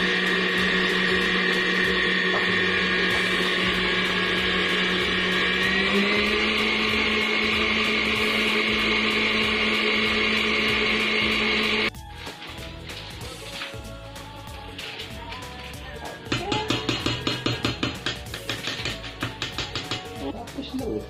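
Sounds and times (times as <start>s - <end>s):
stand mixer motor running: 0.0s - 11.9s.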